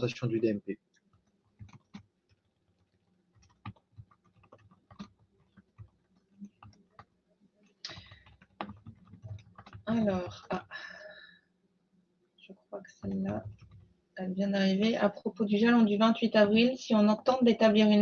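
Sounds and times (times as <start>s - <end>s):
keyboard typing clicks: 1.0s - 7.1s, 7.8s - 10.4s, 13.0s - 13.9s.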